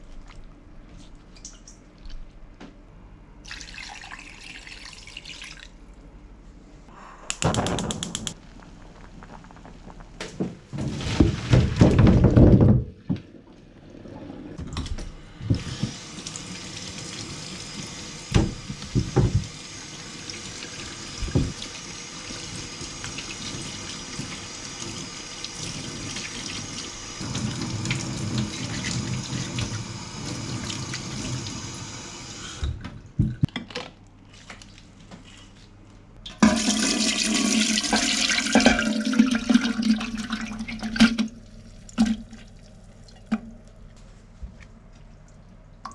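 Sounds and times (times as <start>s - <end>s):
sharp knocks: 7.3s - 8.4s
water splashing and sloshing: 8.3s - 12.6s, 32.8s - 35.8s, 38.0s - 45.9s.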